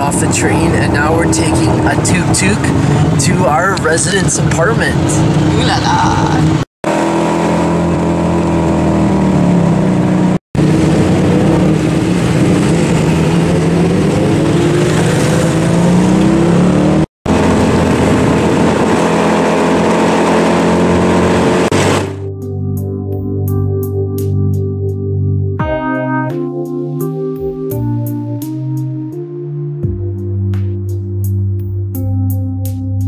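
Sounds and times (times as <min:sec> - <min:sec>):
auto rickshaw engine running: 0:00.0 - 0:22.3.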